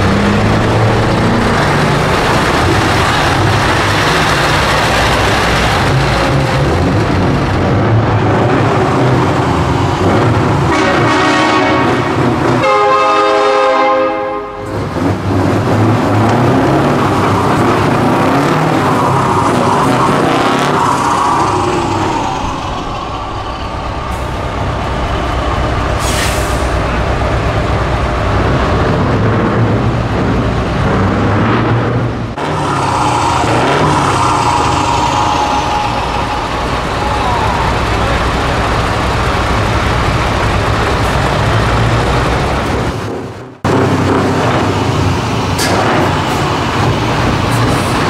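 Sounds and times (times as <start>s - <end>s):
truck engines revving: 0.0s - 48.0s
multi-tone air horn: 10.7s - 14.8s.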